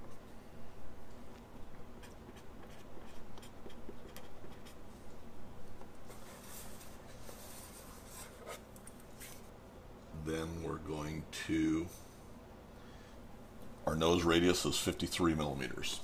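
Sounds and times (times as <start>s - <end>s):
marker scratching on paper: 2.0s - 4.8s.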